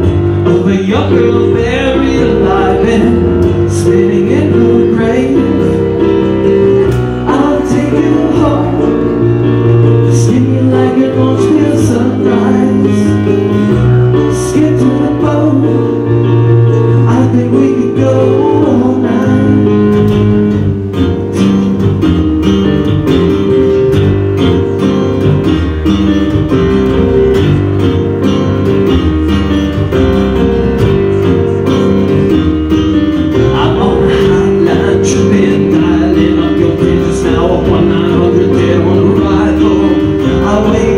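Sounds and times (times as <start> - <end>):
man singing: 0.0 - 20.3, 33.3 - 40.9
keyboard: 0.0 - 40.9
strummed acoustic guitars: 16.7 - 40.9.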